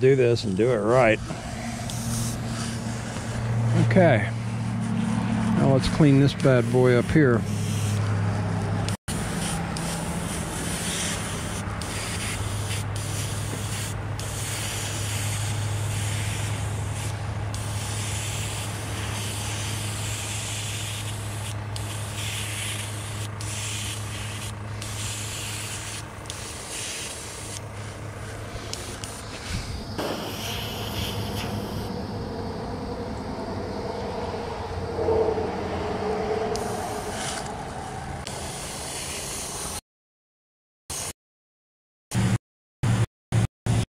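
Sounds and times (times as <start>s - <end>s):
steady low hum: 0.0s - 38.8s
airbrush air hiss: 0.8s - 3.5s, 4.2s - 8.0s, 9.1s - 32.0s, 36.5s - 39.8s.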